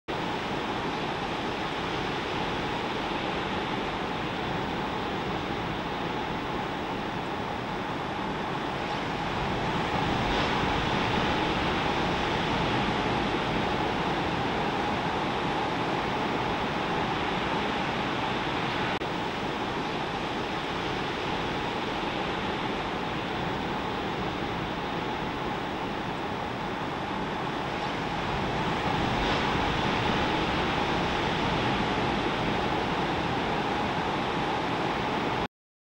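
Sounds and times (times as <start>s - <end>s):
ocean surf breaking: 8.4s - 19.0s, 19.6s - 35.4s.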